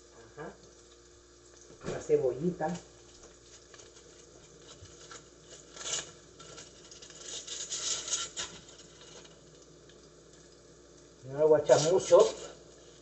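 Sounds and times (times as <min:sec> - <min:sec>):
sausages sizzling in a frying pan: 0:00.0 - 0:13.0
rustling and scraping: 0:03.2 - 0:09.4.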